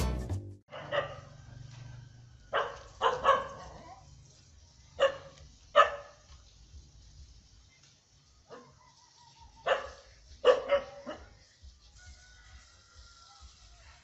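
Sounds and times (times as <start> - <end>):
dogs barking: 0.7 - 1.4, 2.5 - 4.0, 4.9 - 6.3, 8.5 - 9.0, 9.6 - 11.4.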